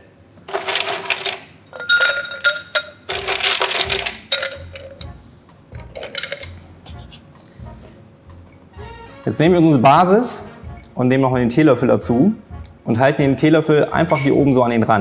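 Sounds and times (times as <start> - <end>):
ice cubes clinking in a glass: 0.5 - 5.1, 5.8 - 6.6, 14.1 - 14.5
light background music: 1.7 - 15.0.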